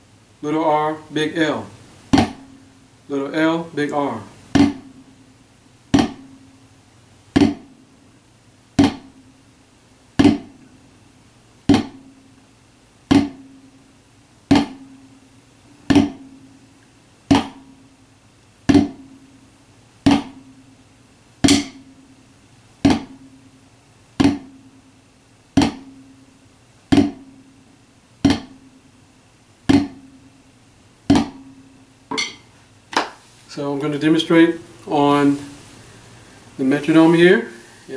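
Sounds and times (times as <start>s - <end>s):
drumstick flams on a practice pad: 2.1s - 2.6s, 4.5s - 5.0s, 5.9s - 6.4s, 7.4s - 7.7s, 8.8s - 9.2s, 10.2s - 10.6s, 11.7s - 12.1s, 13.1s - 13.6s, 14.5s - 15.0s, 15.9s - 16.3s, 17.3s - 17.8s, 18.7s - 19.2s, 20.0s - 20.6s, 21.4s - 21.9s, 22.8s - 23.3s, 24.2s - 24.6s, 25.6s - 26.1s, 26.9s - 27.4s, 28.2s - 28.7s, 29.7s - 30.2s, 31.1s - 33.2s.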